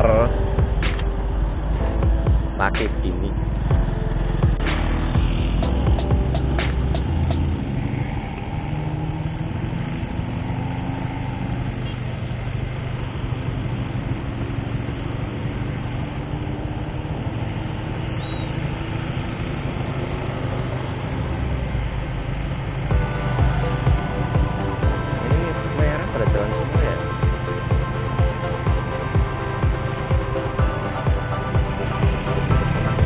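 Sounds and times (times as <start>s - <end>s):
motorcycle engine idling: 22.9s - 33.0s.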